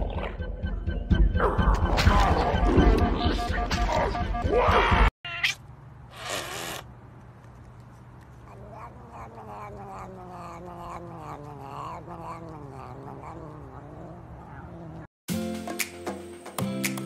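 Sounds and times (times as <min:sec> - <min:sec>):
cat crying and yowling: 0:05.2 - 0:05.6, 0:08.5 - 0:15.1.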